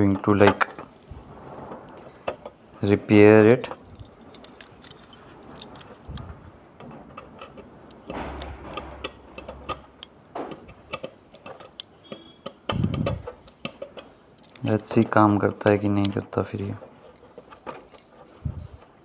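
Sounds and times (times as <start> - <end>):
rustling handling noises: 0.0 - 19.0
metal tool clicking and scraping: 3.6 - 15.2, 15.8 - 19.0.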